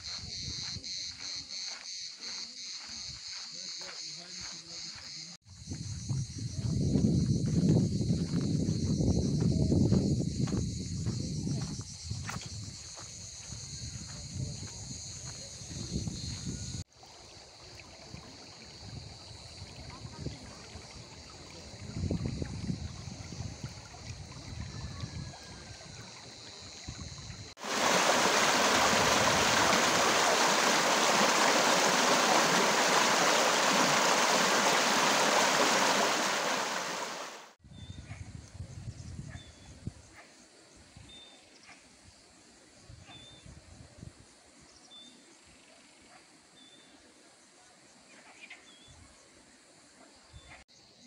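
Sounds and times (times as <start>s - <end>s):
stream running over stones: 16.9s - 37.6s
water splashing down cascade: 27.5s - 37.6s.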